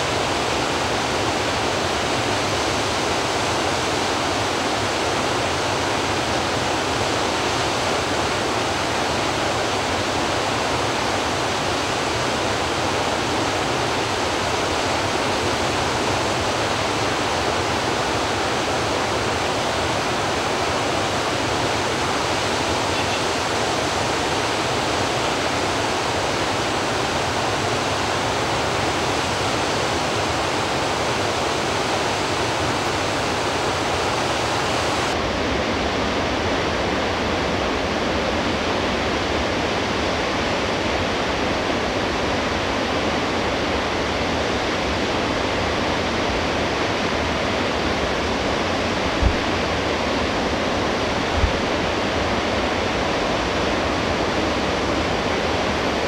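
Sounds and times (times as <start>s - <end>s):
waterfall rushing: 0.0s - 35.5s.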